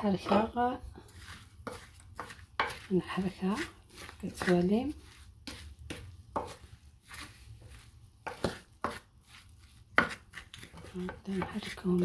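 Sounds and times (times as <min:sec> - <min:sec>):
wooden spoon scraping clay dish: 0:00.0 - 0:12.0.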